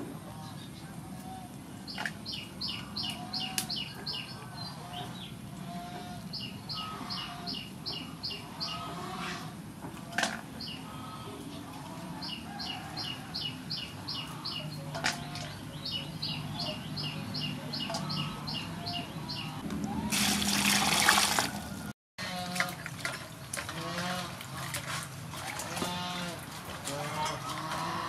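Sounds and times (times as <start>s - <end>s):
bird chirping: 12.2s - 19.6s
water pouring: 20.0s - 21.9s.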